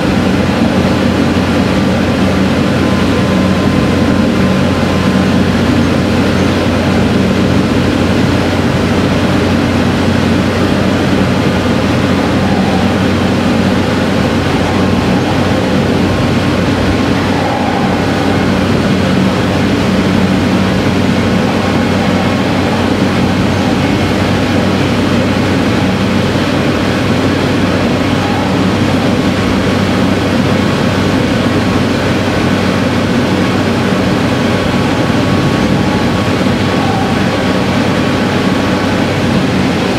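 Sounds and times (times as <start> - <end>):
diesel railcar engine drone: 0.0 - 39.9
wheel and rail rumble: 0.0 - 39.9.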